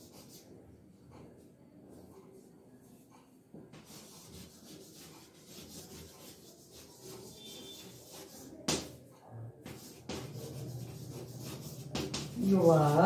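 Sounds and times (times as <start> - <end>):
chalk scratching on blackboard: 0.0 - 0.5, 3.8 - 9.0, 9.6 - 13.0.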